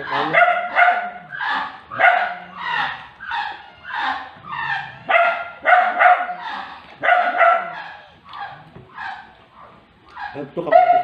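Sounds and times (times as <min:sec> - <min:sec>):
dog barking: 0:00.1 - 0:02.8, 0:05.0 - 0:06.4, 0:07.0 - 0:09.8, 0:10.7 - 0:11.0.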